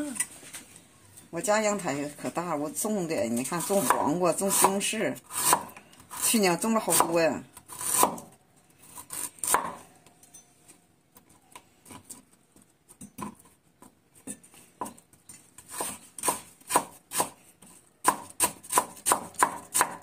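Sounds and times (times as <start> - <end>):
knife chopping on cutting board: 3.7 - 5.7, 7.8 - 8.3, 9.4 - 9.8, 15.7 - 17.4, 18.0 - 20.0.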